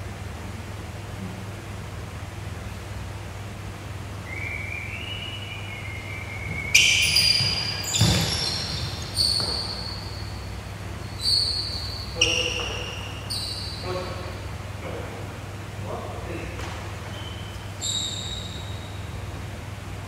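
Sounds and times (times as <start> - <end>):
shoes squeaking on wooden floor: 5.8 - 14.3, 16.6 - 19.0
footfall thump: 6.4 - 9.8.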